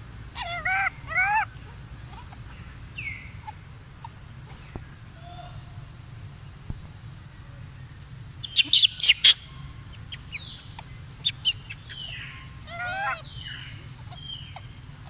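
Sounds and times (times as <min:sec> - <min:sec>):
baby monkey squeaking: 0:00.4 - 0:04.2, 0:08.4 - 0:15.0.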